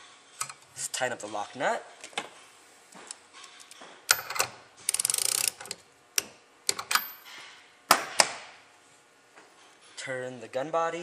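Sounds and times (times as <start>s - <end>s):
ratchet wrench clicking: 4.1s - 5.8s.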